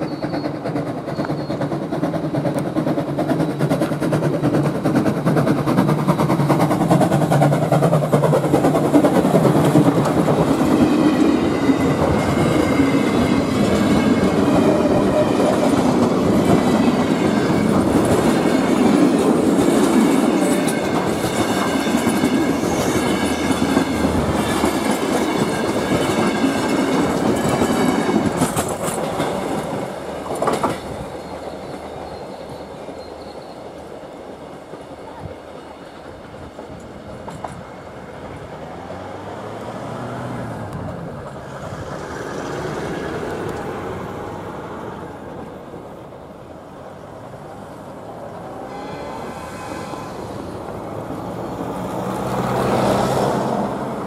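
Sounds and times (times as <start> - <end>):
train wheels clicking over rail joints: 0.0 - 38.7
distant train rumble: 0.0 - 54.0.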